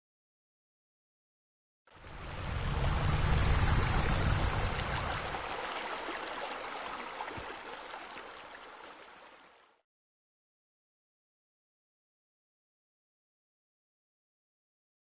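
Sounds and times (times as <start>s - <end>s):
running water rushing: 1.9s - 9.8s.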